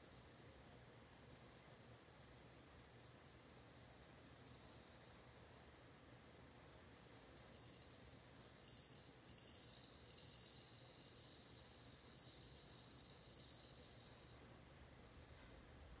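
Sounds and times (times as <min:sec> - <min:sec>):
cricket ringing trill: 0:06.8 - 0:14.5.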